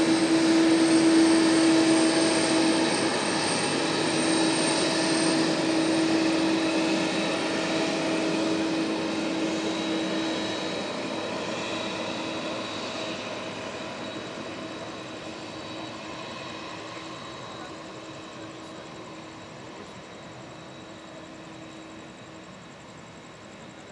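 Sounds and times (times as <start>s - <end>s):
jet engines whining: 0.0s - 23.9s.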